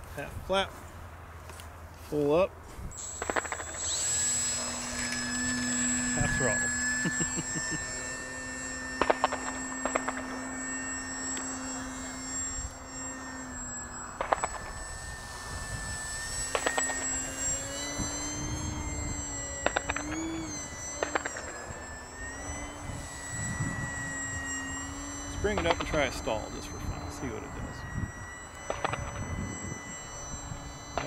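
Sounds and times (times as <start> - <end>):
rc plane motor whine: 0.0 - 31.0
sharp clicks: 3.0 - 7.0, 8.8 - 14.8, 15.7 - 22.5, 28.5 - 30.3.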